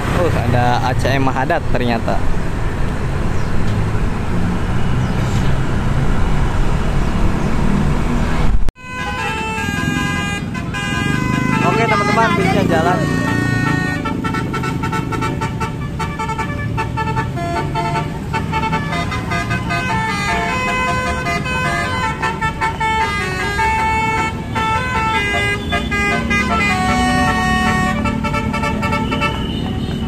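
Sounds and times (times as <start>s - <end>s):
engine and traffic noise: 0.0s - 30.0s
bus multi-tone horn tune: 8.8s - 30.0s.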